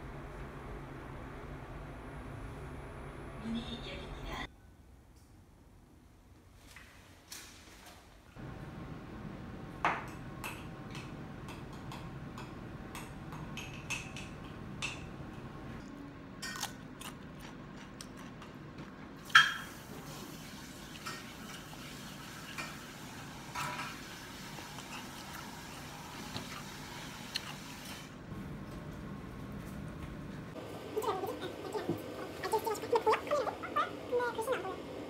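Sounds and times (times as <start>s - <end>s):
steady room hum: 0.0s - 35.0s
dishes and cutlery clinking: 11.0s - 15.1s, 19.2s - 19.8s, 22.4s - 24.1s.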